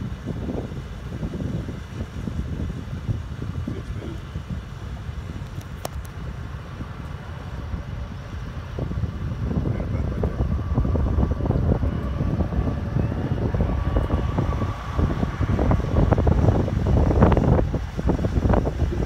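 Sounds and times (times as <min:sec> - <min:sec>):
highway traffic passing: 0:00.0 - 0:19.0
wind buffeting microphone: 0:00.0 - 0:19.0
truck passing: 0:06.2 - 0:19.0.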